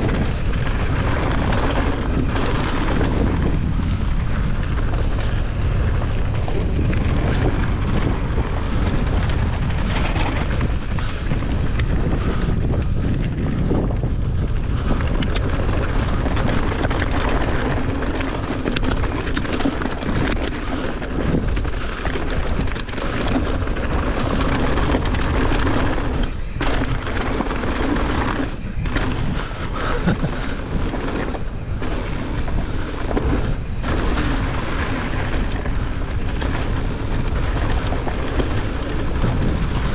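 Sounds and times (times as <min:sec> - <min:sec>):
bike rattling: 0:00.0 - 0:39.9
wind on microphone: 0:00.0 - 0:39.9
tyres crunching over gravel: 0:14.7 - 0:39.9.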